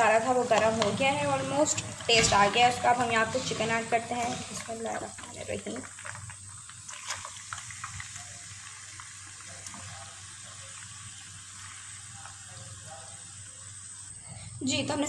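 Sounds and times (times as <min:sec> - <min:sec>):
chicken sizzling in hot oil: 0:00.0 - 0:14.8
oil clicks and pops: 0:04.2 - 0:10.0.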